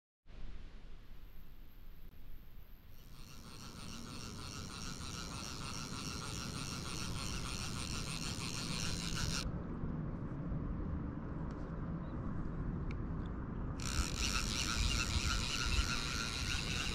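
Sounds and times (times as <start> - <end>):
fly reel drag buzzing: 2.8 - 9.4, 13.8 - 16.9
single reel clicks: 3.0 - 9.4
steady low rumble: 8.6 - 16.9.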